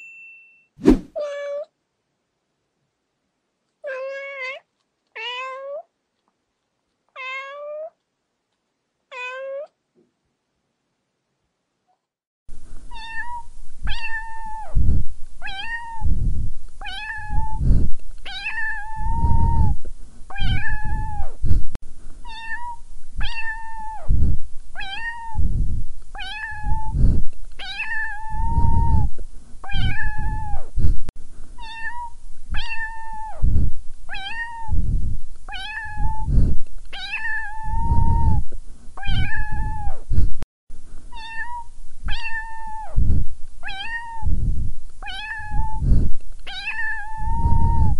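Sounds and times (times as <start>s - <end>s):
cat meowing: 3.8s - 5.9s, 7.2s - 8.0s, 9.1s - 9.7s, 12.9s - 14.8s, 15.4s - 16.1s, 16.8s - 17.6s, 18.3s - 21.3s, 22.2s - 24.1s, 24.8s - 25.4s, 26.2s - 27.0s, 27.6s - 30.6s, 31.6s - 33.4s, 34.1s - 34.8s, 35.5s - 36.3s, 36.9s - 38.4s, 39.0s - 40.0s, 41.1s - 43.0s, 43.6s - 44.3s, 45.0s - 45.8s, 46.5s - 47.9s.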